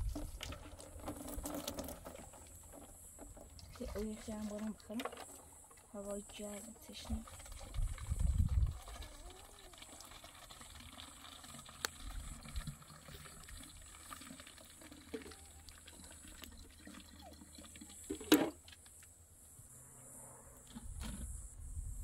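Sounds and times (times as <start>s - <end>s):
liquid pouring into plastic bottle: 0.0s - 5.4s, 6.8s - 18.6s.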